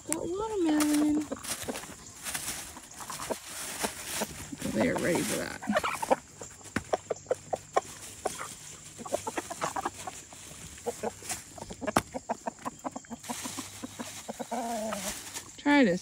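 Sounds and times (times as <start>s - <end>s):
chickens clucking: 0.0s - 15.9s.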